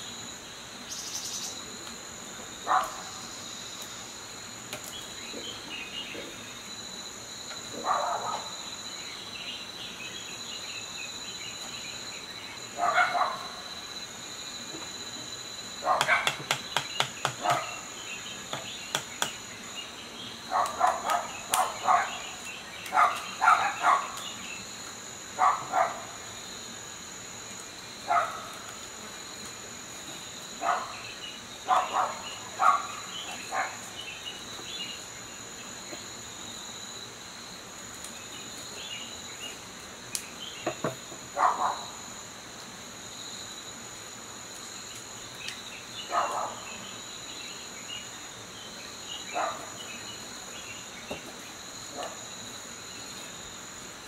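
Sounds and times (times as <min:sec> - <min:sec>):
crickets chirring: 0:00.0 - 0:54.0.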